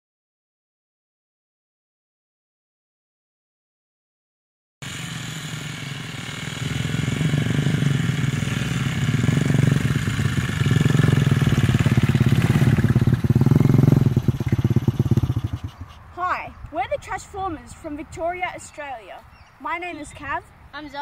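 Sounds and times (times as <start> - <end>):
small engines running: 4.8 - 16.1.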